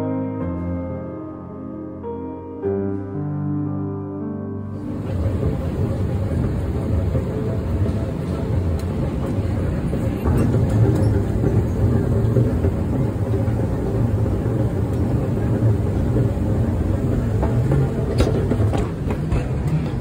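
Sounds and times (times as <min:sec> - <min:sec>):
moving walkway low rumble: 0:04.7 - 0:20.0.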